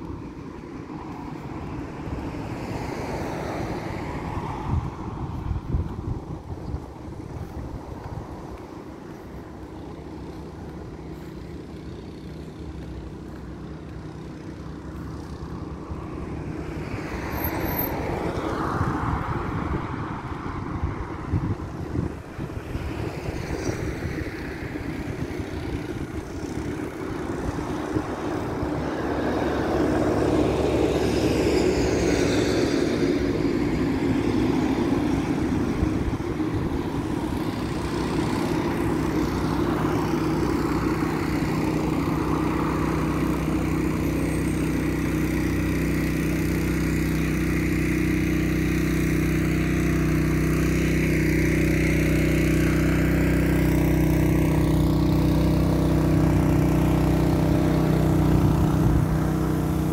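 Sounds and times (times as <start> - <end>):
wind rumbling on microphone: 0.0 - 11.0, 15.5 - 43.8, 55.7 - 59.9
vehicle engine running: 0.0 - 59.9.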